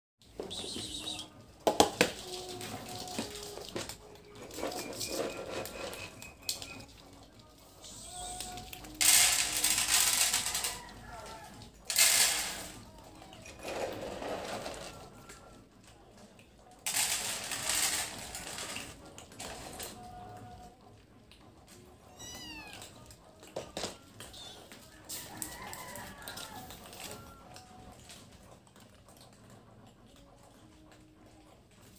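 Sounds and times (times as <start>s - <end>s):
cat kibble rattling: 2.2s - 15.1s.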